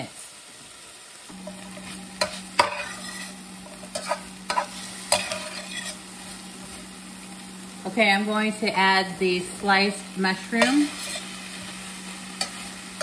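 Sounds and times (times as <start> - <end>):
food sizzling: 0.0 - 13.0
metal spatula scraping skillet: 1.4 - 6.4, 10.4 - 13.0
spatula clanking against pan: 3.9 - 6.0.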